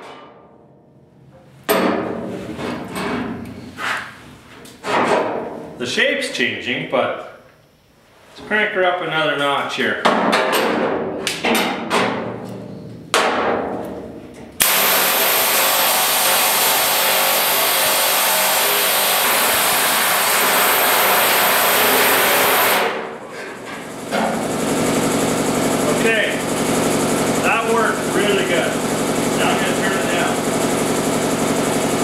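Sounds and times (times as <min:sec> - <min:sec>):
pneumatic air hammer on steel: 0:14.6 - 0:23.1.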